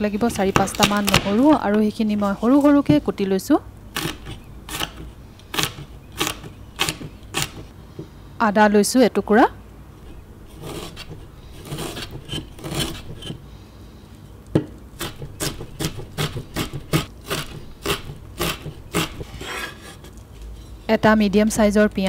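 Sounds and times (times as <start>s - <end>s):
knife slicing and scraping: 4.0s - 7.7s, 10.0s - 13.4s, 15.0s - 20.2s.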